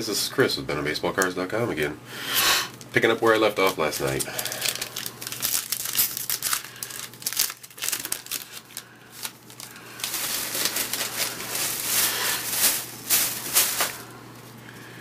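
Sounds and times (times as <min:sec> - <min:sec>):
wrapper crinkling: 0:02.7 - 0:14.6
cards being handled: 0:02.8 - 0:14.1.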